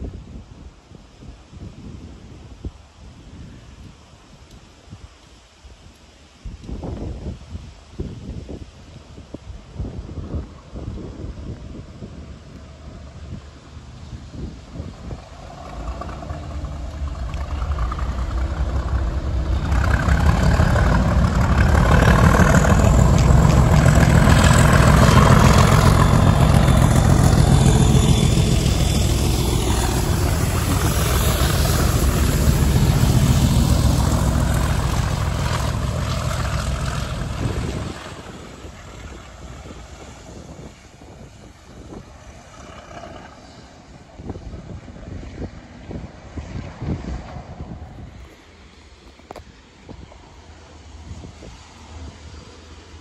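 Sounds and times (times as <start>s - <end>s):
diesel locomotive engine: 12.0s - 53.0s.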